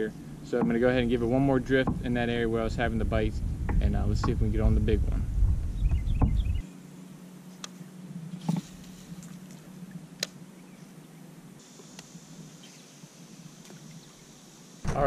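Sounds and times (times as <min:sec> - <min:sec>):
thin high hiss: 0:11.6 - 0:15.0.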